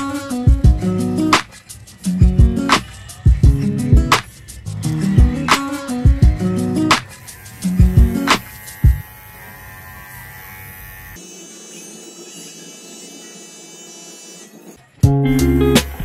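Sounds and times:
pet hair clipper buzzing: 4.3s - 14.8s.

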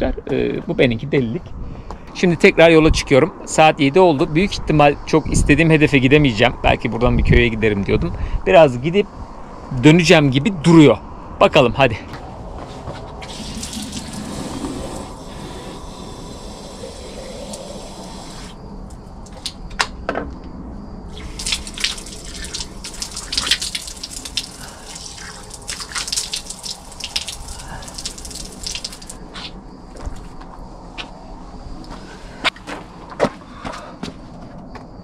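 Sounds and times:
water running from fountain: 13.2s - 18.6s, 21.1s - 29.2s.

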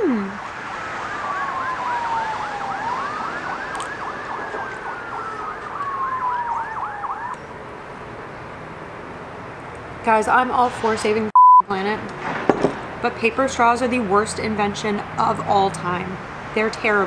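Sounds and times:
siren yelping warble: 0.0s - 7.4s
siren wailing: 0.0s - 7.6s.

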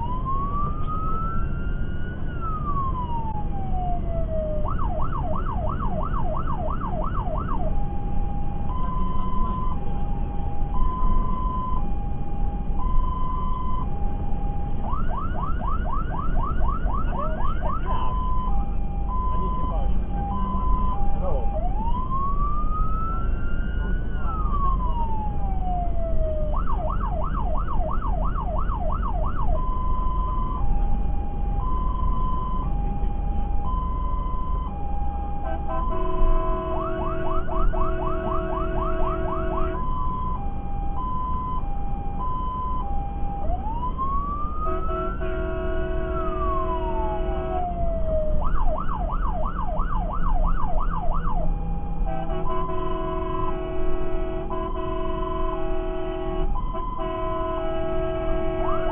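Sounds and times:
fire engine siren: 0.0s - 58.9s
truck engine and road noise: 0.0s - 58.9s
air horn: 35.4s - 39.8s, 44.6s - 47.7s, 52.0s - 58.9s.

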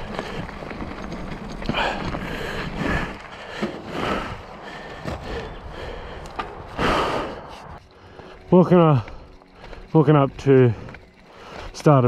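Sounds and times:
person breathing hard: 1.6s - 9.9s, 10.8s - 11.8s.

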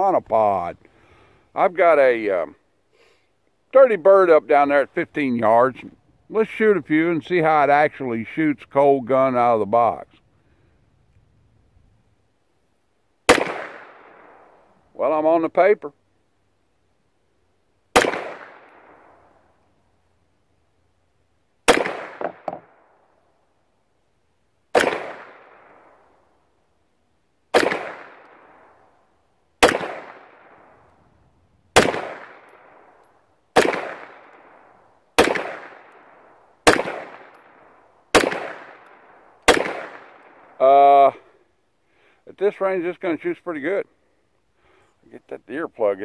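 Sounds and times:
pistol shots: 13.3s - 14.7s, 17.9s - 19.4s, 21.6s - 23.0s, 24.7s - 26.3s, 27.5s - 29.0s, 29.6s - 30.8s, 31.7s - 40.6s.

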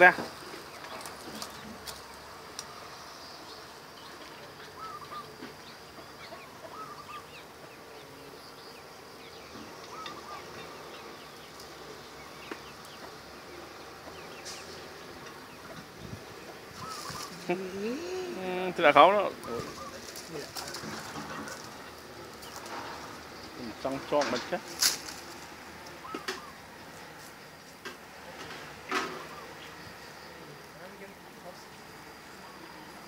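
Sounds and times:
insects buzzing: 0.0s - 33.0s
bird call: 2.8s - 15.8s, 16.4s - 18.5s, 19.1s - 23.6s, 25.0s - 26.8s, 28.5s - 30.6s
net rustling: 24.6s - 25.6s.

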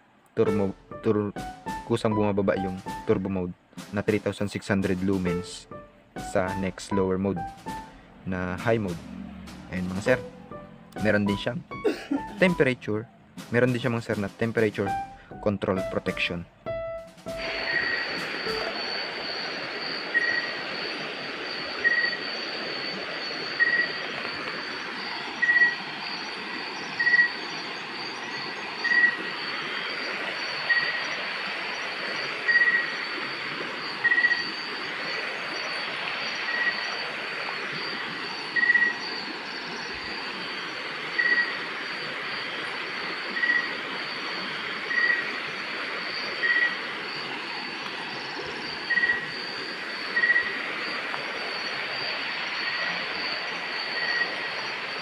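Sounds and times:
high-pitched insect trill: 17.4s - 55.0s.

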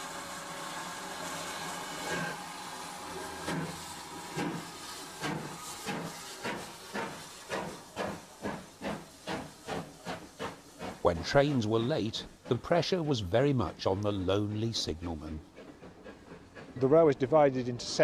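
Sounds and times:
steam locomotive hissing: 0.0s - 18.0s
locomotive exhaust chuffs: 3.4s - 17.1s.

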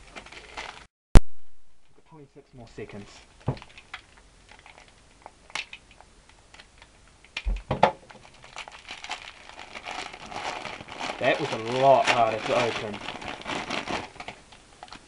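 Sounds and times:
plastic crinkling: 0.0s - 0.9s, 3.4s - 6.9s, 8.0s - 15.0s
plastic wrapping being torn: 0.0s - 0.9s, 3.5s - 5.9s, 8.0s - 15.0s.

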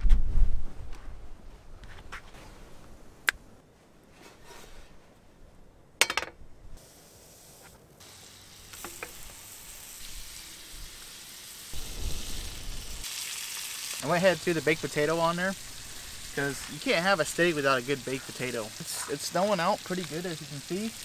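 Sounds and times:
steak sizzling in a skillet: 6.8s - 21.0s.

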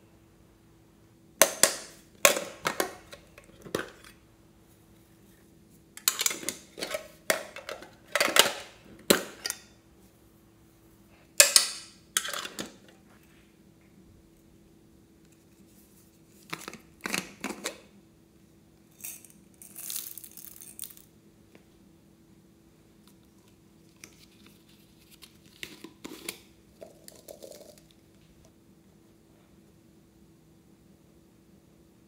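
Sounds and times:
plastic containers clicking and clattering: 1.4s - 4.1s, 6.0s - 9.6s, 16.5s - 17.9s.

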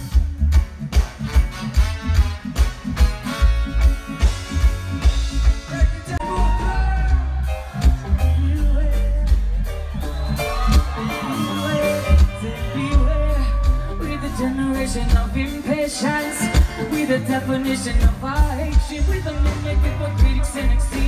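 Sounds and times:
live band music: 0.0s - 21.0s
person singing: 5.4s - 21.0s.

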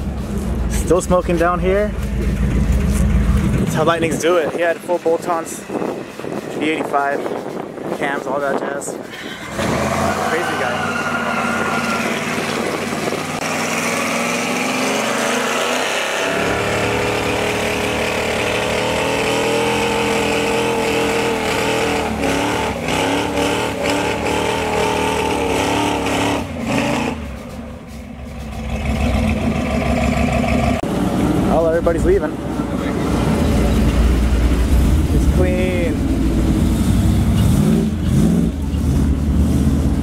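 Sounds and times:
car engine revving hard: 9.5s - 27.3s, 32.9s - 40.0s.

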